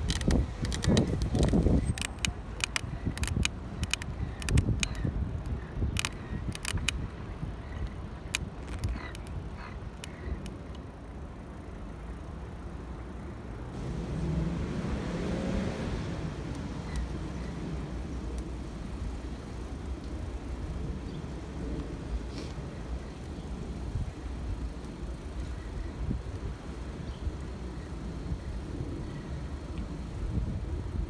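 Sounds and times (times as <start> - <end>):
sharp clicks: 0.0 - 9.4
bicycle tyre rumble and wind: 0.0 - 31.0
car passing: 13.6 - 19.7.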